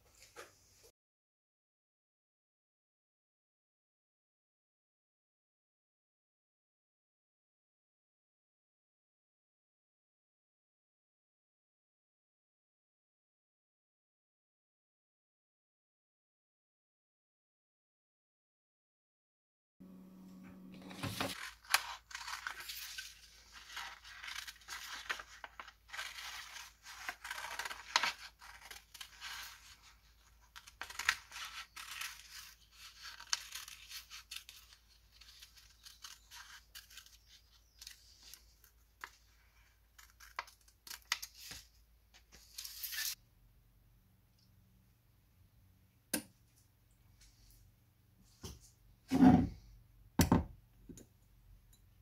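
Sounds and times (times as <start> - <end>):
paper rustling: 20.8 - 43.2
scissors snipping paper: 21.3 - 39.2.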